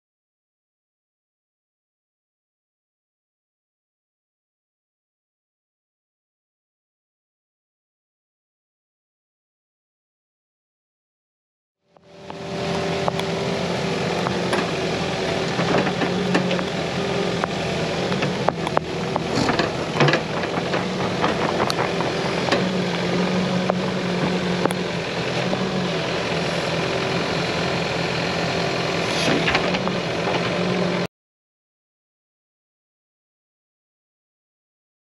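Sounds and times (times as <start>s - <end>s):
diesel engine running: 11.9s - 31.1s
knocks and clatter: 18.2s - 23.0s.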